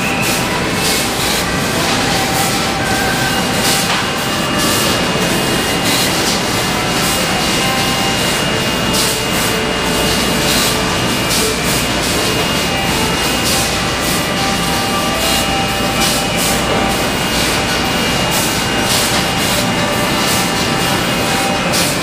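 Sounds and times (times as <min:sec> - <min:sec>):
constant high whine: 0:00.0 - 0:22.0
loud steady machine noise: 0:00.0 - 0:22.0.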